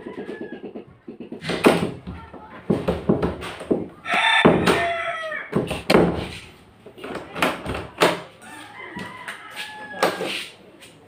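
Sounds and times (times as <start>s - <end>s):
rooster crowing: 4.0s - 5.6s, 8.4s - 10.4s.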